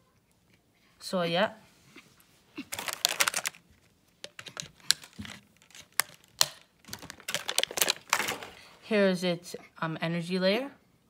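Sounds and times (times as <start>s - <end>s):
plastic bag crinkling: 2.6s - 8.8s.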